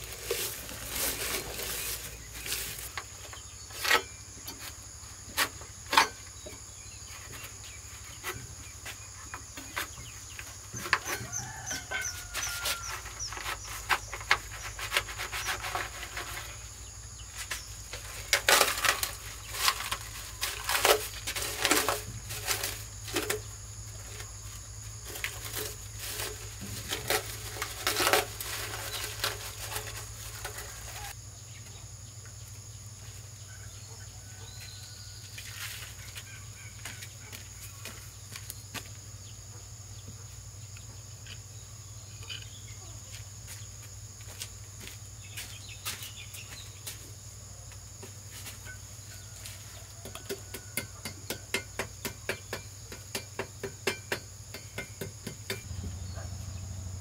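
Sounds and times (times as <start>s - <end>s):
plastic sheeting rustling: 0.0s - 3.1s, 25.1s - 31.1s.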